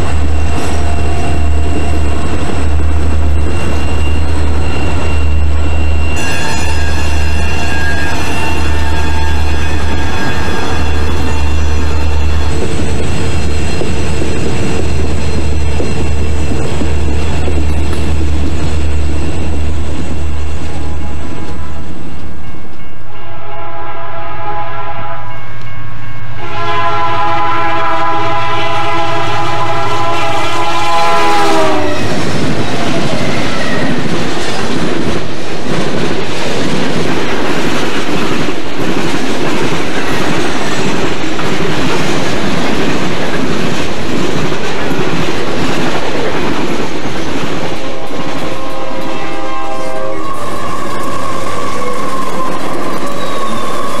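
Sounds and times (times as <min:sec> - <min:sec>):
locomotive horn blasts: 0:23.2 - 0:32.1, 0:47.8 - 0:54.0.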